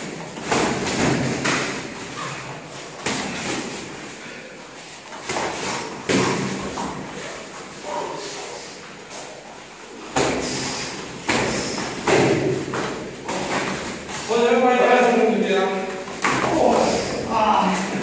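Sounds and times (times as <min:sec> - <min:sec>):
gloved punches and kicks landing: 0:11.3 - 0:13.8.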